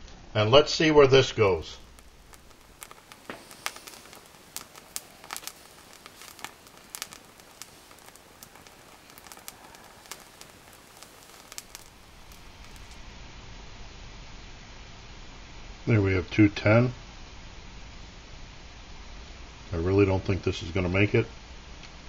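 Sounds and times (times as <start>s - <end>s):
low hiss: 0.0s - 22.0s
faint crackles and ticks: 1.3s - 13.2s, 19.6s - 22.0s.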